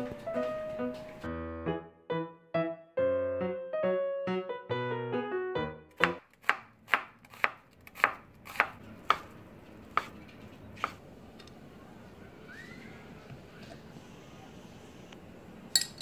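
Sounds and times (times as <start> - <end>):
knife striking cutting board: 6.0 - 9.3, 10.8 - 11.0.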